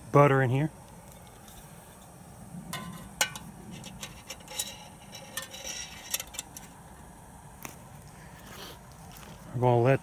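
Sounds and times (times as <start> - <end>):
metal pot clinking and scraping: 1.1 - 6.8.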